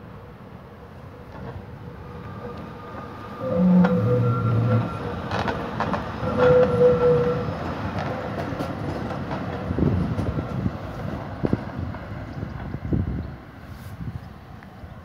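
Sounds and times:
tram wheels clicking over rail joints: 0:01.2 - 0:13.3
wheel squeal: 0:02.3 - 0:07.6.

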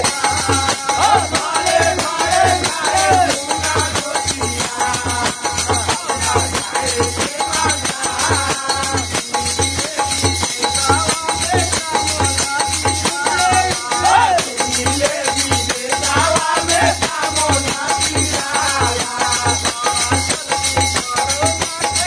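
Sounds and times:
hand cymbals clashing: 0:00.0 - 0:22.0
men singing folk song: 0:00.0 - 0:22.0.

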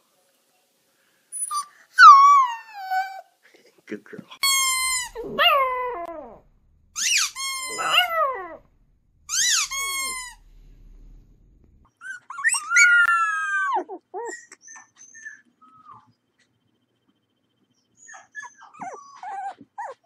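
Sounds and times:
puppy yips: 0:01.4 - 0:03.3, 0:04.4 - 0:06.4, 0:07.0 - 0:08.6, 0:09.3 - 0:10.4, 0:11.9 - 0:16.2, 0:17.8 - 0:20.0
puppy howling: 0:01.5 - 0:03.3, 0:04.4 - 0:10.4, 0:12.0 - 0:16.1.

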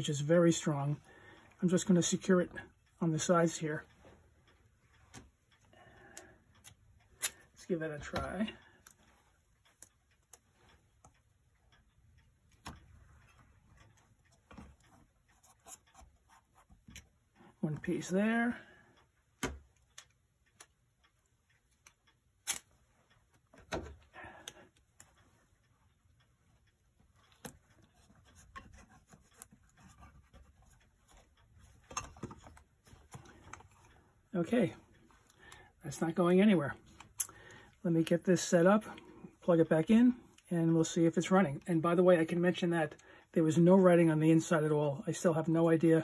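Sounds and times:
light clicks and taps: 0:00.0 - 0:46.0
metal housing clicks and taps: 0:31.8 - 0:33.9.

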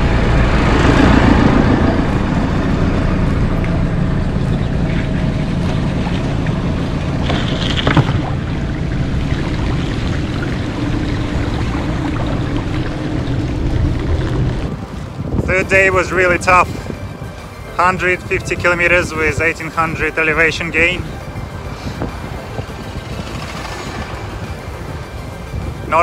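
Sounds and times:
tractor passing: 0:00.0 - 0:16.7, 0:17.6 - 0:25.6
wind on microphone: 0:00.0 - 0:26.0
bicycle tyres splashing through water: 0:04.8 - 0:15.3.

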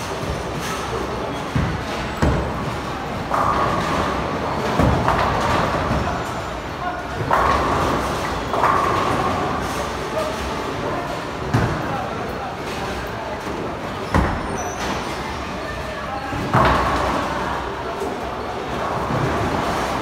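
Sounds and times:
bowling balls rolling: 0:01.5 - 0:11.9.

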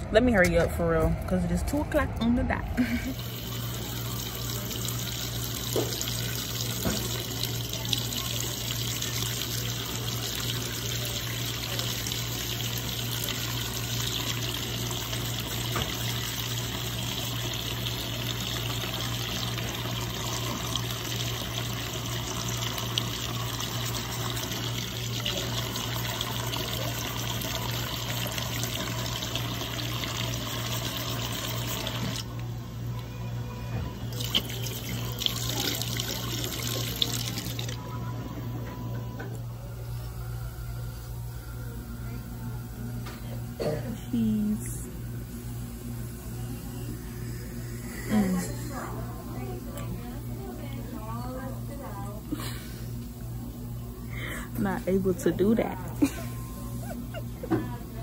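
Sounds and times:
faucet running into sink: 0:02.8 - 0:32.4, 0:34.1 - 0:37.8.

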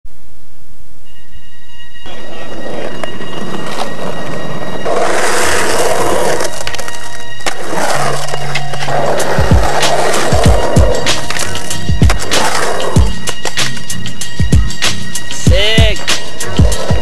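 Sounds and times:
skateboard wheels rolling on concrete: 0:02.0 - 0:17.0
loud music: 0:07.4 - 0:17.0.

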